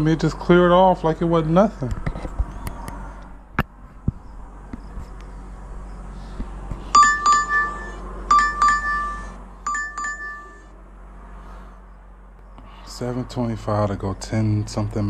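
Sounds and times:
doorbell ding-dong chime: 7.0 - 10.7.

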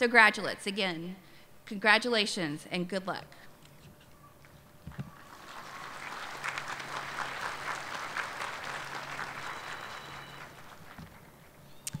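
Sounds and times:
audience applauding: 5.1 - 11.6.

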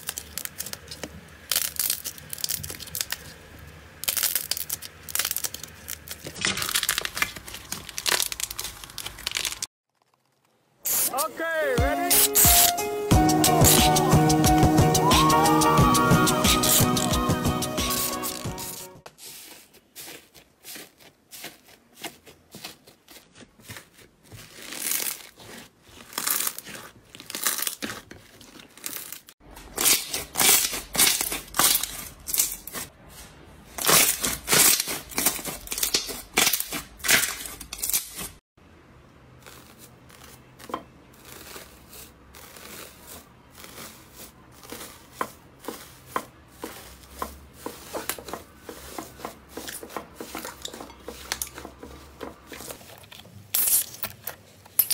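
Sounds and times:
slime squishing and crackling: 0.0 - 10.7, 19.2 - 32.9, 39.4 - 53.1.

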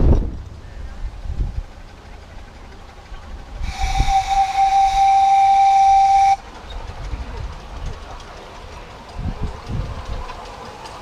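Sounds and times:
steam locomotive whistle: 3.6 - 6.4.

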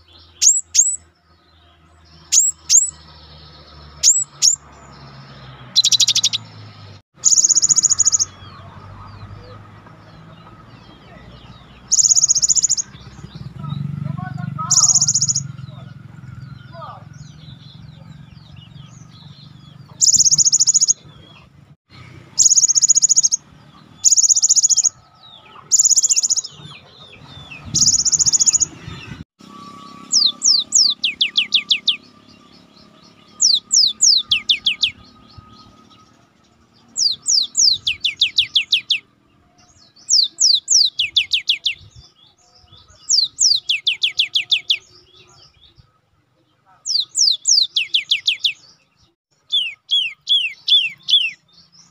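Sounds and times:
bird rapid falling notes: 11.9 - 18.0.

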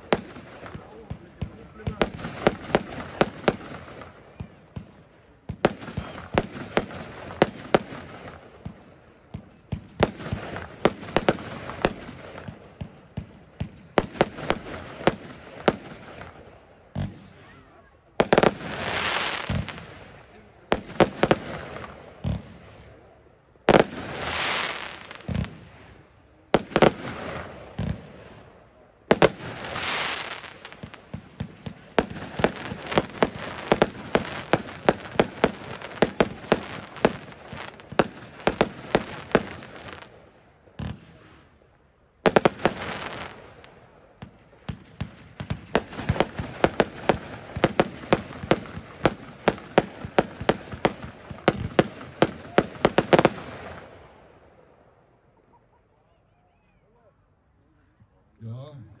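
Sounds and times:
firework crackles: 0.0 - 17.6, 18.2 - 41.6, 42.2 - 54.2
firework shots hissing and banging: 26.6 - 28.4, 29.1 - 40.2.

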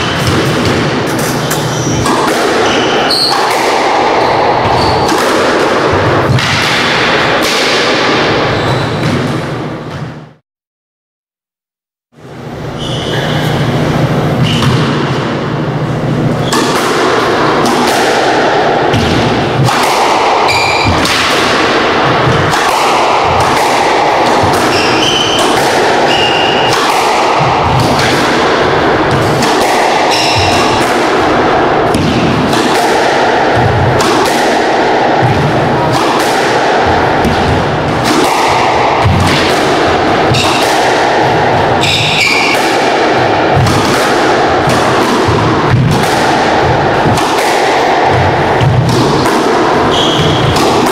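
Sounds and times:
squash ball thudding: 0.0 - 10.2, 14.0 - 50.9
shoes squeaking on court floor: 1.2 - 3.4, 4.2 - 5.1, 8.5 - 9.2, 12.7 - 14.8, 49.9 - 50.6.

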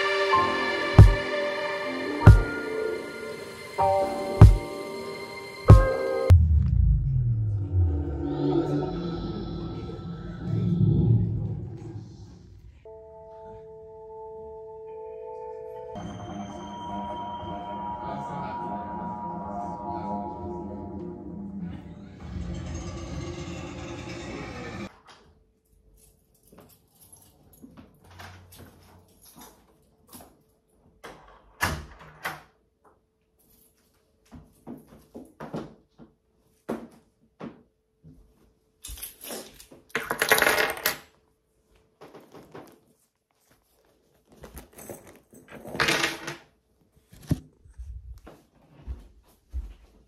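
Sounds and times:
rustling handling noise: 41.9 - 45.8.

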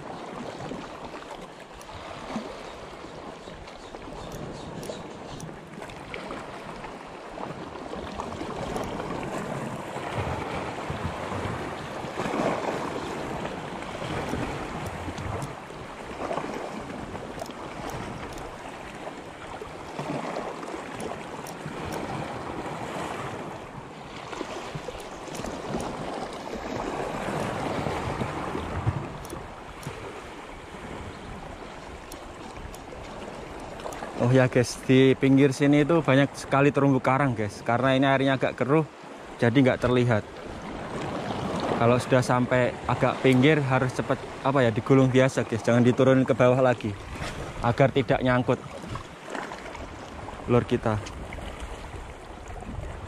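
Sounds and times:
small waves splashing at shore: 0.0 - 53.0
wind on microphone: 7.4 - 34.2, 46.9 - 49.1, 49.7 - 53.0.

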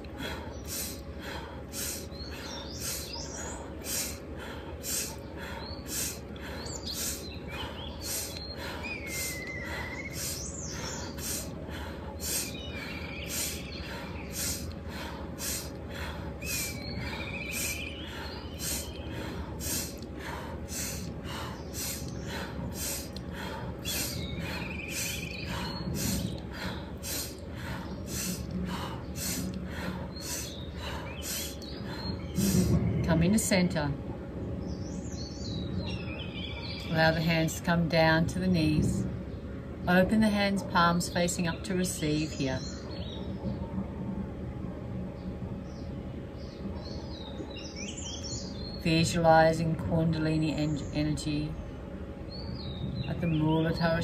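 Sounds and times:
rapid forceful breathing: 0.0 - 32.9
birds chirping: 0.0 - 54.0.

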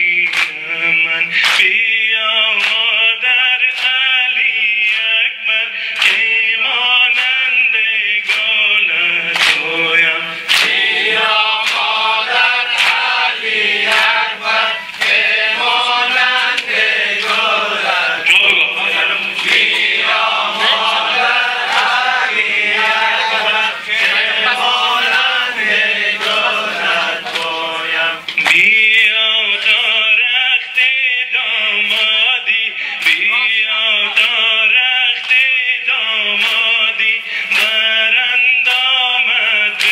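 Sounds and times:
men chanting in unison: 0.0 - 39.9
chest-beating slaps: 9.4 - 9.7, 10.5 - 10.8.

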